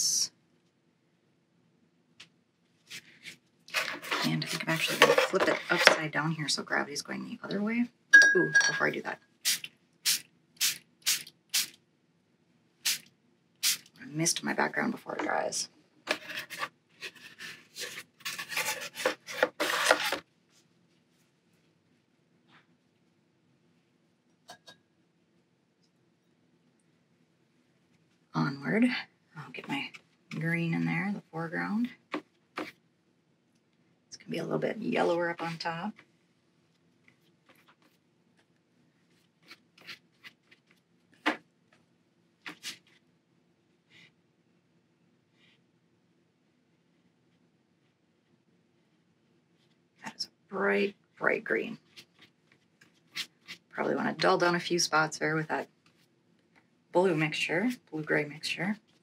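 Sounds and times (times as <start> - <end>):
board scraping across tabletop: 16.1 - 20.2
brush strokes on paper: 39.0 - 40.8.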